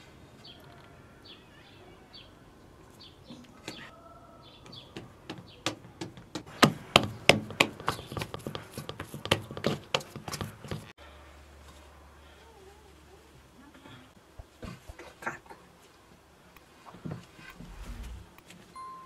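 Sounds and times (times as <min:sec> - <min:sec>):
hands kneading dough in steel bowl: 0:06.1 - 0:10.9.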